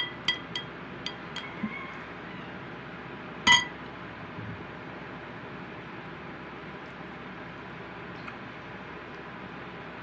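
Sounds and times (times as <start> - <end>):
tableware clinking: 3.5 - 3.8.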